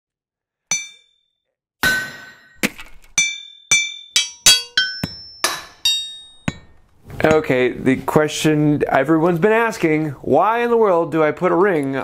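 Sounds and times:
sharp metallic clinks: 0.7 - 1.1, 3.1 - 6.8.

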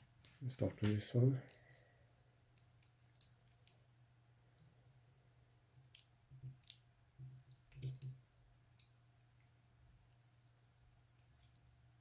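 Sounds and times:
low steady hum: 0.0 - 12.0
screwdriver bits clicking: 1.5 - 1.8, 2.6 - 3.8, 7.7 - 8.1, 11.4 - 11.6.

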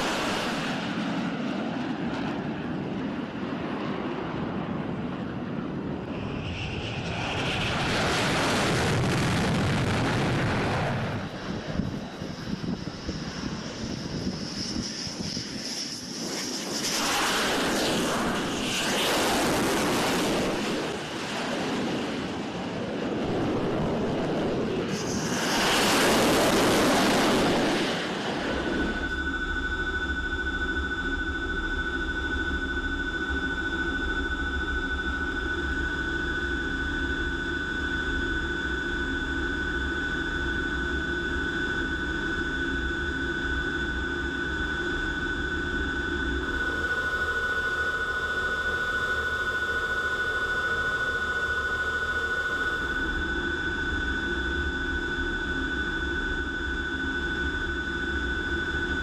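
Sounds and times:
high whine: 0.0 - 3.4, 4.1 - 59.0
jet engine and airflow rumble: 0.0 - 59.0.

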